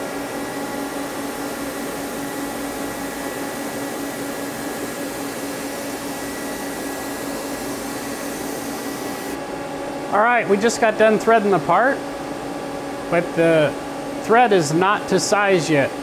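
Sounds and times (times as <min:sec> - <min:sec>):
lathe machine hum: 0:00.0 - 0:10.2.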